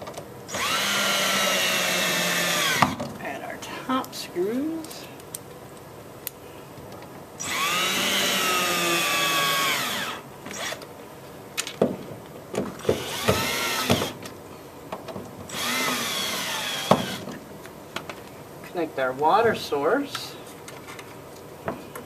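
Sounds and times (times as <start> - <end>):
cordless drill motor whirring: 0.5 - 3.0, 7.4 - 10.8, 12.8 - 14.2, 15.5 - 17.3.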